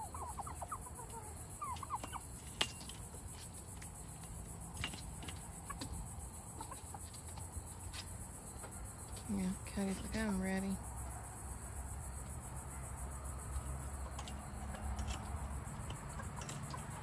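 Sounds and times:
turkeys calling: 0:00.0 - 0:07.7, 0:13.4 - 0:17.0.

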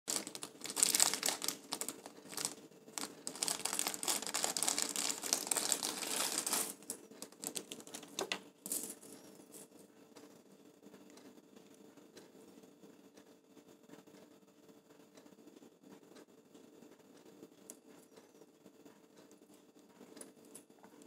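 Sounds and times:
plastic bag crinkling: 0:00.1 - 0:08.9.

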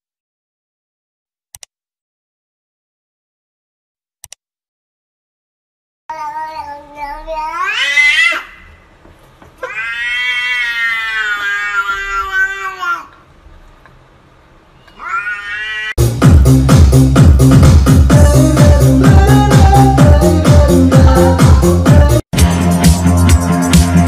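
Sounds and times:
cat meowing in long yowls: 0:07.4 - 0:08.6, 0:09.6 - 0:13.1, 0:14.9 - 0:16.0
electronic dance music: 0:16.0 - 0:24.0.

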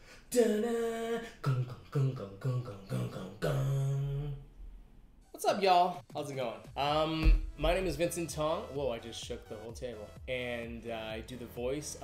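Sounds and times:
man vocalizing a tune: 0:00.3 - 0:04.5.

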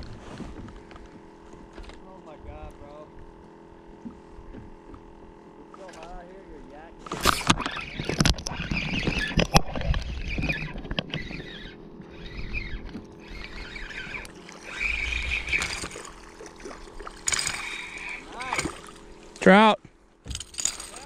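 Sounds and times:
fishing reel and rod handling: 0:05.7 - 0:06.2, 0:07.0 - 0:19.5, 0:20.3 - 0:21.0.

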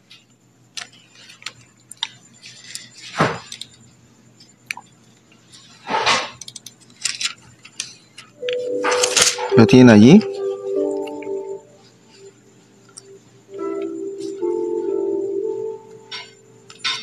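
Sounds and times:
pages rustling and turning: 0:00.8 - 0:03.6, 0:05.5 - 0:09.6.

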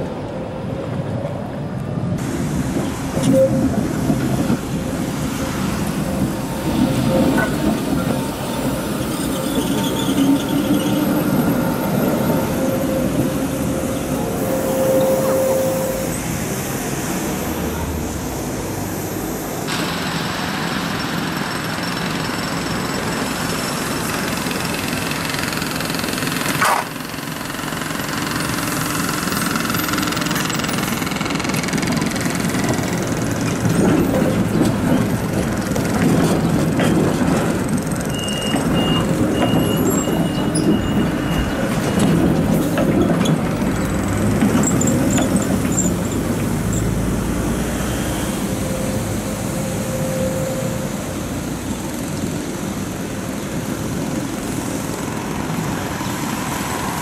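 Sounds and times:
tram wheels rumbling on rails: 0:00.0 - 0:57.0
high wheel squeal: 0:03.2 - 0:17.6, 0:37.9 - 0:52.4.

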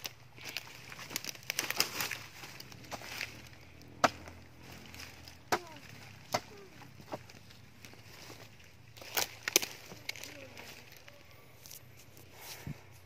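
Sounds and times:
footsteps crunching dry grass: 0:00.0 - 0:13.0
digging tool chopping soil: 0:00.5 - 0:09.9.

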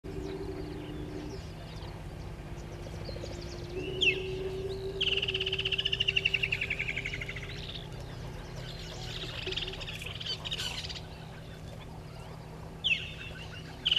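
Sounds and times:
steady low drone: 0:00.0 - 0:13.9
faint bird chirps: 0:00.1 - 0:13.9
kingfisher calling: 0:00.1 - 0:13.9.

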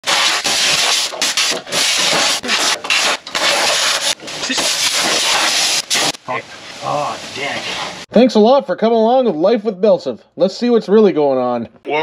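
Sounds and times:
compressed-air tool hissing: 0:00.0 - 0:06.2
tool scraping metal: 0:00.0 - 0:06.7.

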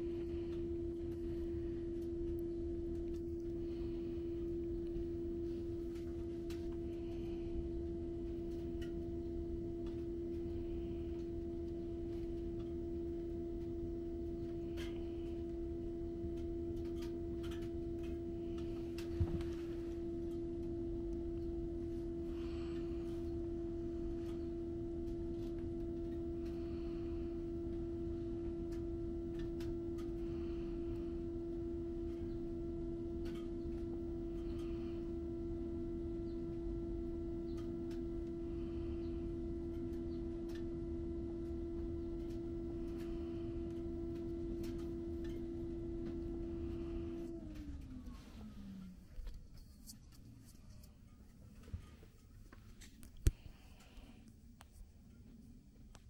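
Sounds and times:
faint clicks: 0:36.1 - 0:40.8, 0:41.4 - 0:56.0
bus machinery hum: 0:45.9 - 0:49.2.

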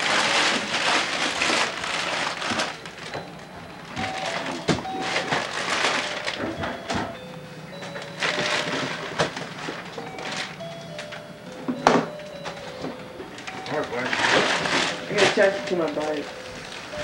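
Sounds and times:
wrapping paper crinkling and tearing: 0:00.0 - 0:03.2, 0:03.8 - 0:06.6, 0:08.1 - 0:11.1, 0:13.4 - 0:17.0.

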